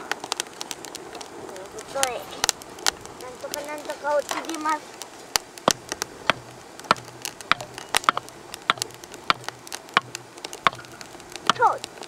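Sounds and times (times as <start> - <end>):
wood fire crackling and popping: 0.0 - 12.0.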